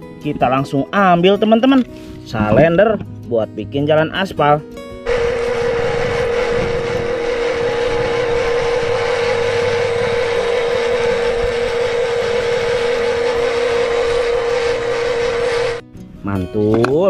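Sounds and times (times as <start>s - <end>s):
heavy vehicle engine drone: 5.1s - 15.8s.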